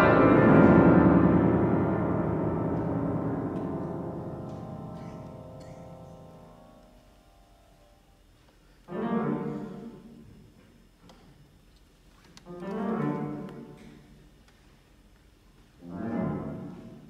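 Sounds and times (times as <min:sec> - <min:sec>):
grand piano chords: 0:00.0 - 0:08.3.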